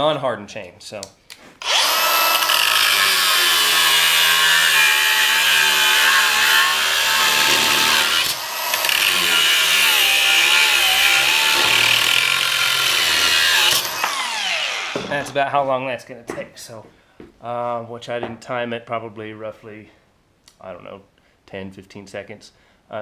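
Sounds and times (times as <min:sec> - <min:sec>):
angle grinder cutting steel chain: 0:01.6 - 0:15.1.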